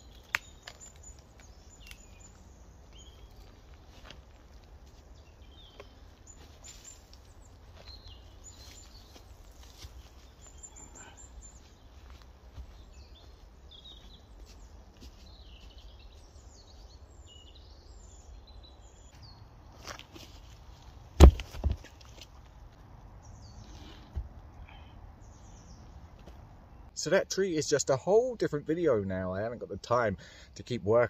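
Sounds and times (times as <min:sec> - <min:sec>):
small birds chirping: 0:00.0 - 0:21.0, 0:21.9 - 0:31.0.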